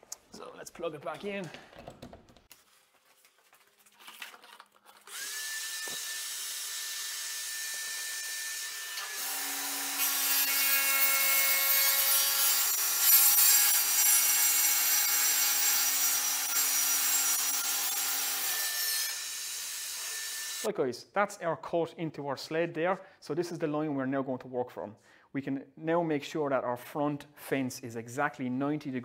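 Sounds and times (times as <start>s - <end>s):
saw blade cutting board: 5.1s - 20.7s.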